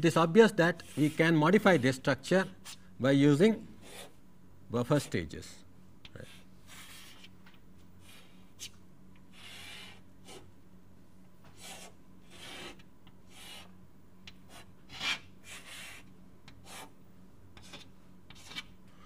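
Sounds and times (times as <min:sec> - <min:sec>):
faint steady hum: 0:00.0 - 0:19.0
pen scratching on paper: 0:11.6 - 0:13.7, 0:16.6 - 0:16.9.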